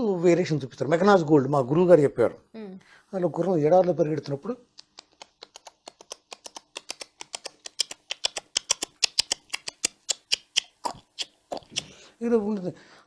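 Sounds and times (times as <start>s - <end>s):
mouth clicks imitating hoofbeats: 4.6s - 12.0s.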